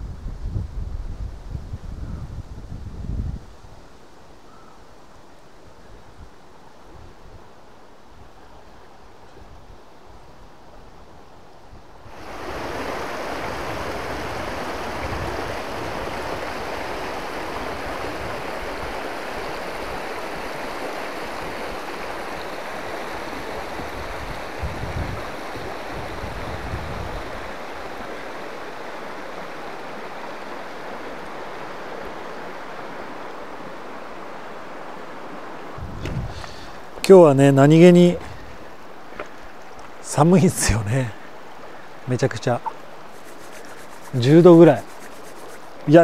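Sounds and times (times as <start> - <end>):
river rushing over stones: 12.0 - 46.0.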